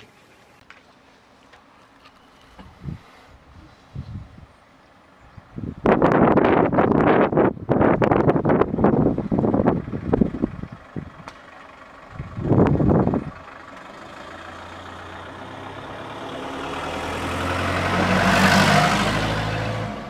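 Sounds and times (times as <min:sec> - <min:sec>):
wind rumble on microphone: 0:02.6 - 0:04.6, 0:05.2 - 0:11.4, 0:12.1 - 0:13.5
van engine driving past: 0:08.8 - 0:20.0.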